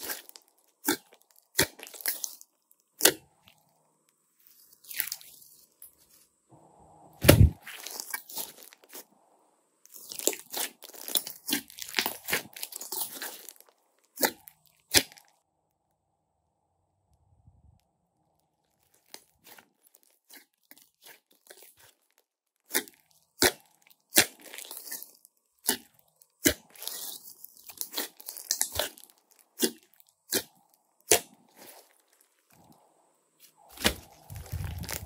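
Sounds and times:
slime squishing and crackling: 0.0s - 3.6s, 7.2s - 9.1s, 9.9s - 15.4s, 18.7s - 32.8s, 33.5s - 35.0s
slime squelch: 0.0s - 6.3s, 7.2s - 15.4s, 18.6s - 35.0s.

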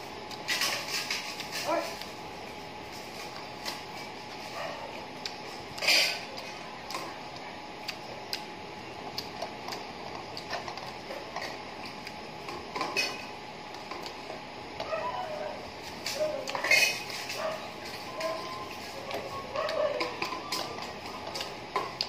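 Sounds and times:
eating clicks and mouth sounds: 5.2s - 8.5s, 9.1s - 11.0s.

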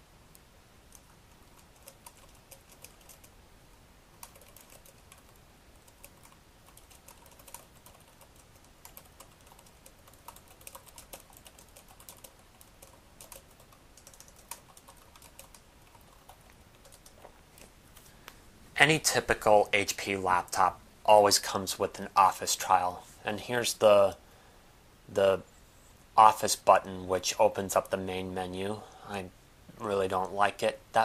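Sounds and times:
laptop keyboard typing: 0.9s - 3.3s, 4.2s - 17.7s.

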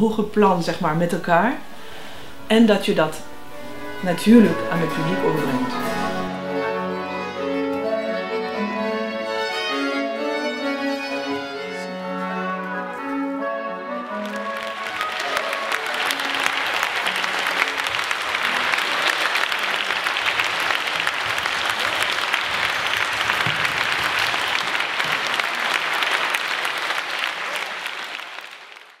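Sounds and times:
audience applauding: 3.2s - 6.9s, 13.9s - 29.0s.

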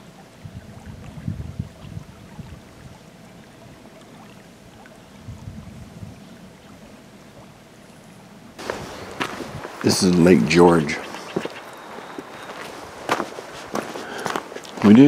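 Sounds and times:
wind buffeting microphone: 0.4s - 3.0s, 5.2s - 6.4s, 8.6s - 15.0s.

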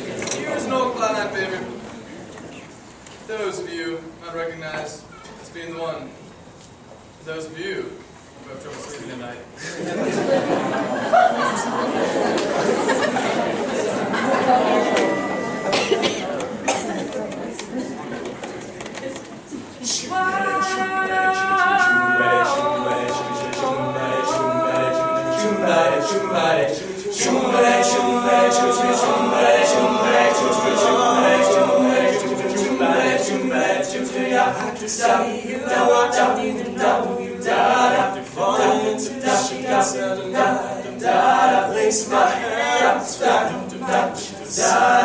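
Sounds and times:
male group singing in harmony: 11.9s - 16.0s, 19.9s - 45.0s.

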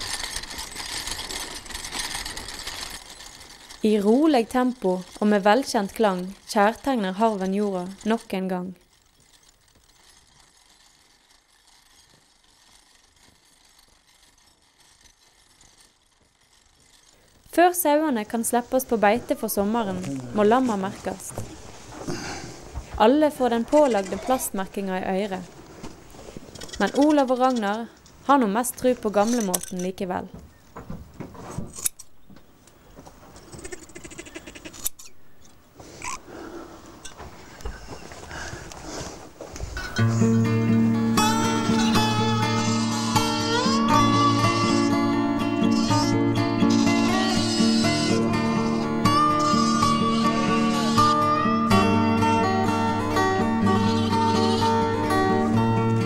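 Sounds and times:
harrow clinking rattle: 0.0s - 20.9s, 26.2s - 30.0s
lamb bleating: 33.6s - 34.8s.

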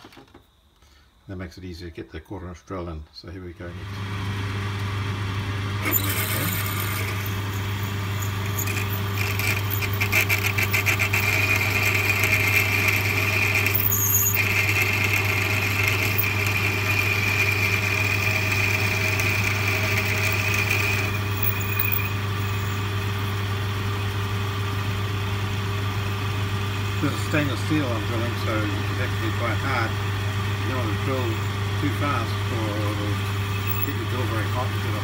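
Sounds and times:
lathe humming: 3.8s - 35.0s
high squeal of drill cutting: 5.8s - 23.4s, 31.1s - 34.7s.

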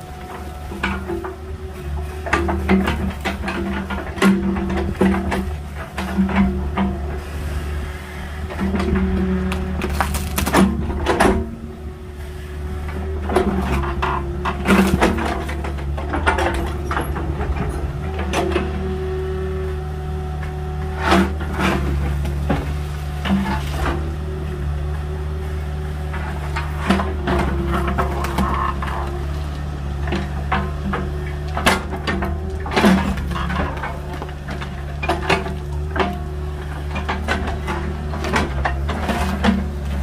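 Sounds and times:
diesel engine running under load: 0.0s - 40.0s
bucket knocking and cracking: 9.5s - 11.4s.

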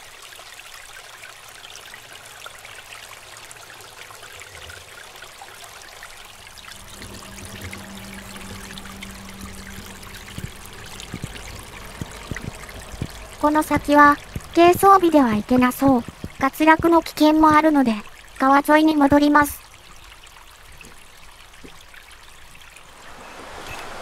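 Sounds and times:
water trickling down rock: 0.0s - 23.9s.

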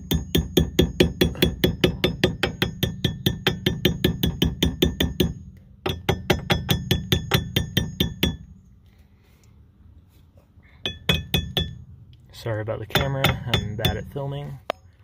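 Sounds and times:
hammer tapping on thin steel: 0.1s - 8.5s, 10.8s - 11.8s, 12.8s - 14.3s.

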